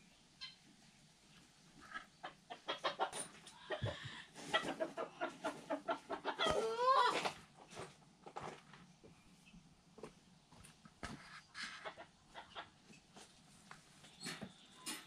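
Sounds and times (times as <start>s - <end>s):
chickens clucking: 1.3s - 8.0s, 11.2s - 13.4s.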